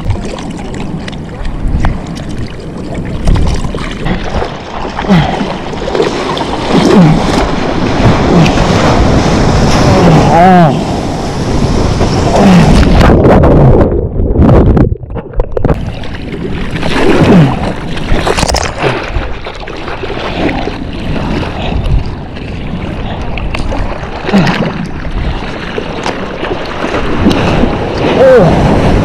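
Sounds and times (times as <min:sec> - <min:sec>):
water sloshing and splashing: 0:00.0 - 0:29.0
wind buffeting microphone: 0:05.3 - 0:19.4.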